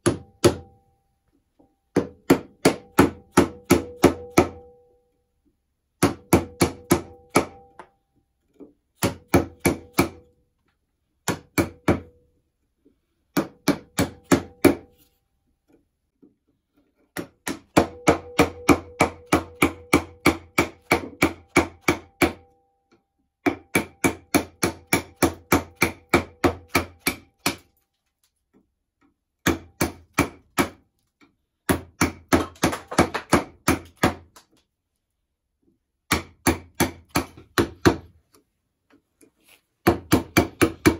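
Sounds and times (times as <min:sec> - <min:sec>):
chisel struck by mallet: 0:00.0 - 0:00.8, 0:01.9 - 0:04.9, 0:06.0 - 0:08.0, 0:09.0 - 0:10.3, 0:11.2 - 0:12.2, 0:13.3 - 0:14.9, 0:17.2 - 0:22.6, 0:23.4 - 0:27.8, 0:29.4 - 0:30.8, 0:31.6 - 0:34.4, 0:36.1 - 0:38.2, 0:39.8 - 0:40.9.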